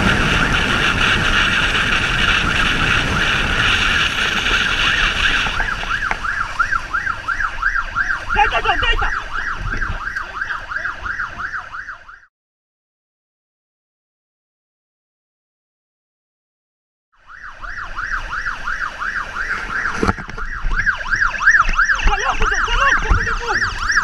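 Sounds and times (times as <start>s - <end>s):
motorcycle engine riding fast: 0.0s - 6.6s
yelp siren warbling: 0.0s - 12.3s, 17.2s - 24.0s.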